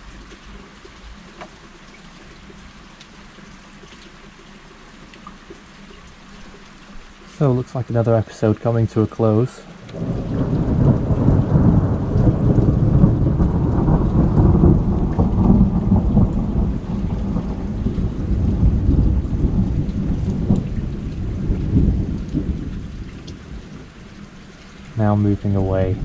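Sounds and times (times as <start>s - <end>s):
steady rain: 0.0s - 26.0s
thunder rumbling: 9.8s - 24.0s, 24.8s - 26.0s.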